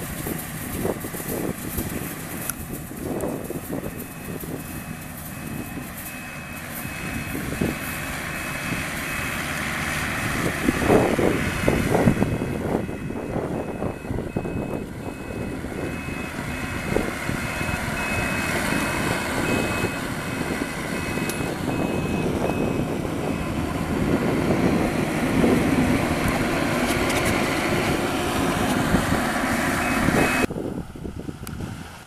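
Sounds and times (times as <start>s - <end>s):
combine harvester running: 0.0s - 32.0s
repeating high beep: 29.8s - 30.5s.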